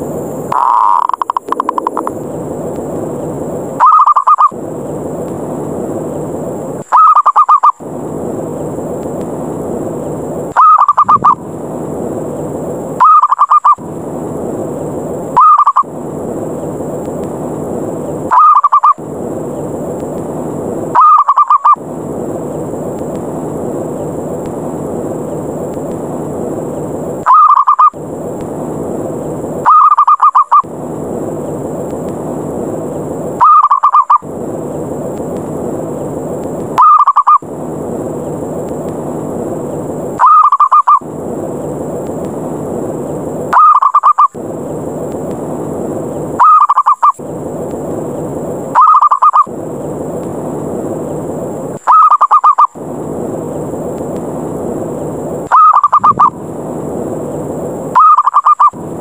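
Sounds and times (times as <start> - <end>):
steady hiss: 0.0 - 59.0
dove rolling call: 0.5 - 2.0, 3.8 - 4.6, 6.9 - 7.8, 10.6 - 11.4, 13.0 - 13.8, 15.3 - 15.9, 18.3 - 19.0, 20.9 - 21.8, 27.2 - 28.0, 29.6 - 30.7, 33.4 - 34.3, 36.7 - 37.5, 40.2 - 41.1, 43.5 - 44.4, 46.3 - 47.2, 48.7 - 49.5, 51.8 - 52.8, 55.5 - 56.4, 57.9 - 58.8.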